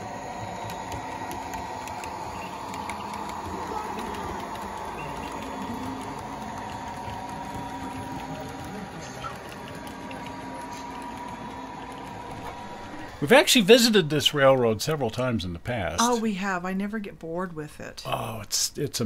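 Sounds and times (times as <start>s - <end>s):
model train hum and whine: 0.0s - 14.4s.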